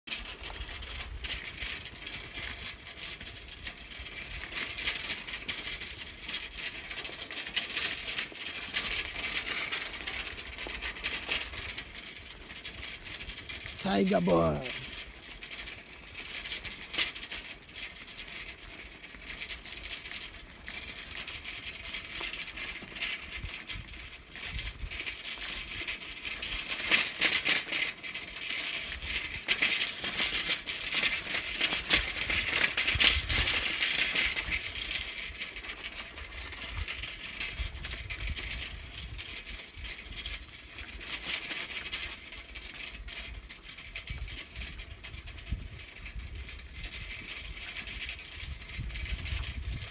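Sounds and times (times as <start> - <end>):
bicycle rattling and clicking: 0.1 - 49.9.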